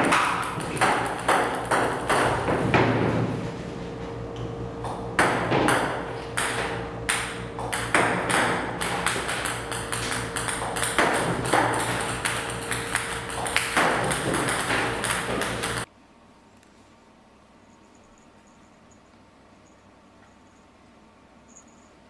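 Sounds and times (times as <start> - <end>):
ping-pong balls bouncing on table: 0.0 - 3.1, 4.8 - 15.9
machine hum: 0.0 - 22.0.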